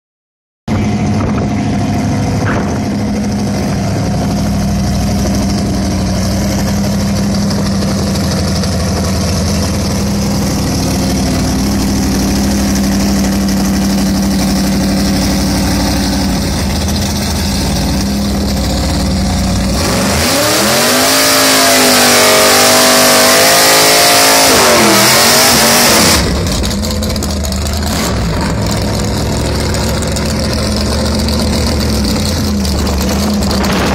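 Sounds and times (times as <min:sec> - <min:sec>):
car engine idling and revving: 0:00.7 - 0:33.9
spinning tyres hissing: 0:02.4 - 0:33.9.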